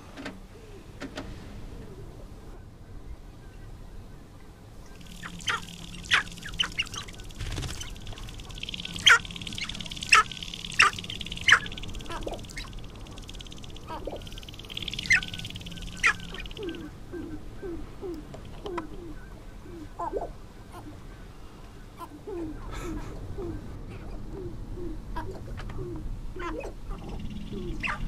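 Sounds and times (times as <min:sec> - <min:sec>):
sharp downward sweeping bird calls: 0:04.9 - 0:17.8, 0:26.9 - 0:28.0
rapid rattling drum of grouse: 0:05.0 - 0:13.3.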